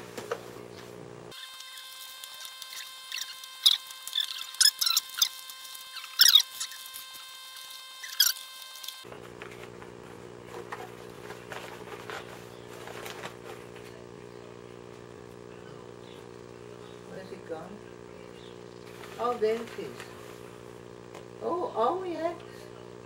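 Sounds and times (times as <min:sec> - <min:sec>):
steady low hum: 0:00.0 - 0:23.0
paper rustling: 0:08.0 - 0:14.0, 0:18.8 - 0:20.6.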